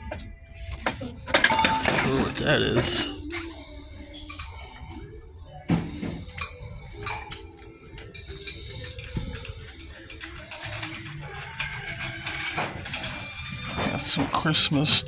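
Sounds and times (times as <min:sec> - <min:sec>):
faint background music: 0:00.0 - 0:15.0
shopping cart rattling: 0:08.4 - 0:15.0.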